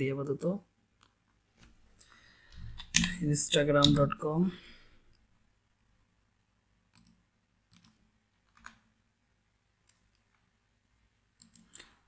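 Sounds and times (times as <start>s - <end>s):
faint computer mouse clicks: 6.9s - 8.8s, 11.4s - 12.0s.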